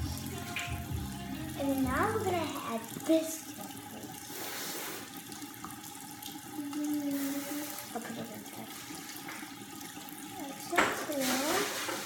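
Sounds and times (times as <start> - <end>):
tap running into sink: 0.0 - 4.2, 7.5 - 12.0.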